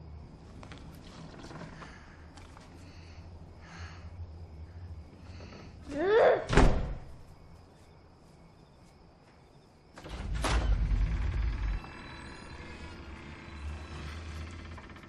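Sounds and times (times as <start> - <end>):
rising creak: 1.0 - 2.7, 10.0 - 15.0
door slam: 6.4 - 7.2, 10.0 - 11.6.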